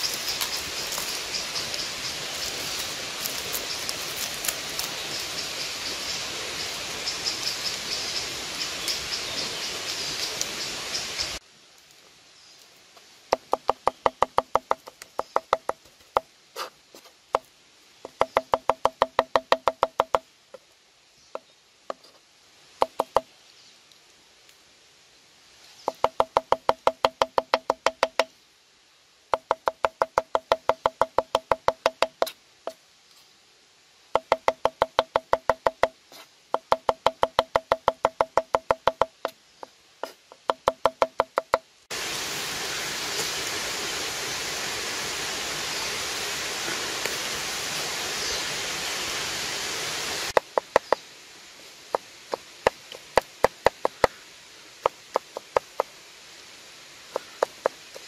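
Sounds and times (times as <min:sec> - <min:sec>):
rapid hollow wooden knocking: 0:13.3 - 0:16.3, 0:18.1 - 0:20.2, 0:22.8 - 0:23.3, 0:25.9 - 0:28.3, 0:29.3 - 0:32.3, 0:34.2 - 0:39.4, 0:40.3 - 0:41.6, 0:50.4 - 0:51.0, 0:51.9 - 0:54.2, 0:54.8 - 0:55.9, 0:57.2 - 0:58.0.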